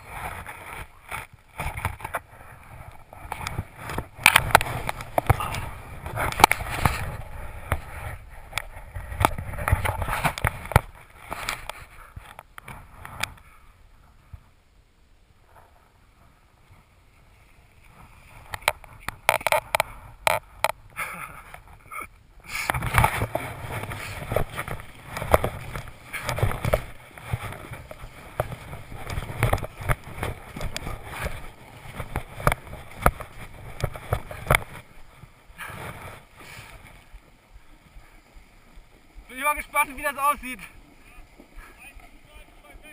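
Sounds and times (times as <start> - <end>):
snowboard scraping on snow: 22.5 - 38.2.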